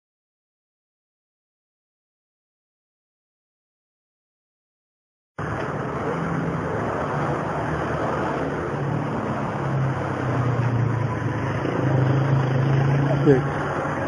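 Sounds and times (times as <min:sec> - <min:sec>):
road noise rush: 0:05.4 - 0:14.0
vehicle engines humming: 0:05.4 - 0:14.0.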